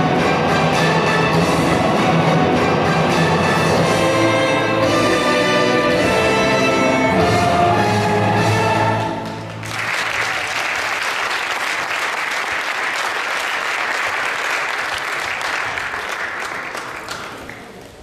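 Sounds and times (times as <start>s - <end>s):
audience applauding: 9.0s - 18.0s.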